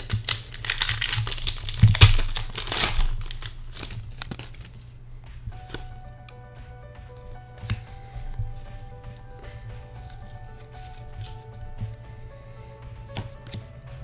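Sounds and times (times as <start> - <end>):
foil wrapper crinkling and tearing: 0.0 - 5.0
cards rustling: 0.0 - 14.0.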